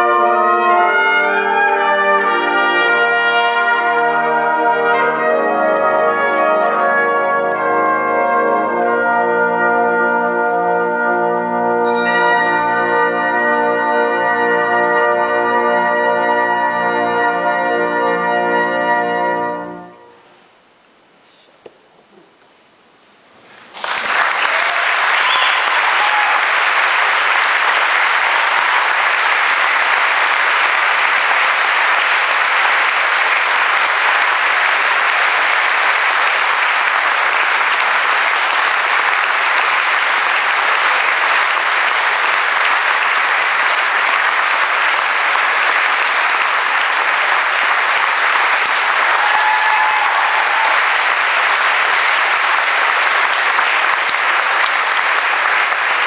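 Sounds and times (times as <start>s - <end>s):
audience applauding: 23.6s - 56.0s.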